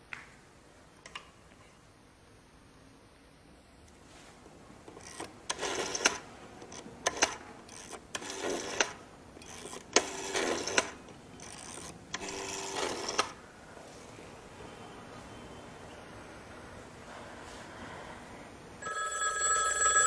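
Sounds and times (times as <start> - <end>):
telephone crank whirring: 4.9 - 13.4.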